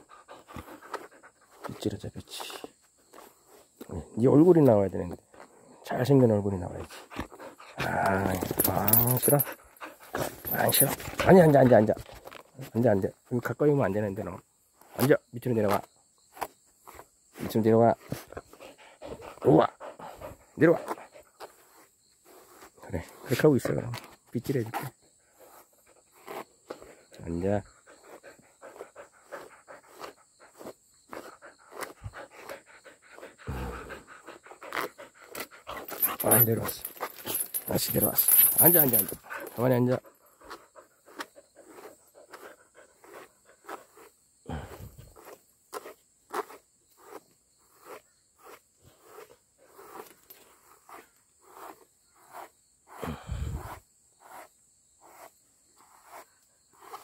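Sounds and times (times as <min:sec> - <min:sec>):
dog panting: 0:00.0 - 0:01.7, 0:06.9 - 0:07.8, 0:09.4 - 0:11.4, 0:18.4 - 0:21.4, 0:27.7 - 0:36.3, 0:39.1 - 0:43.9
brush raking through fur: 0:21.4 - 0:23.4, 0:25.4 - 0:26.9, 0:40.4 - 0:44.1, 0:44.7 - 0:57.0.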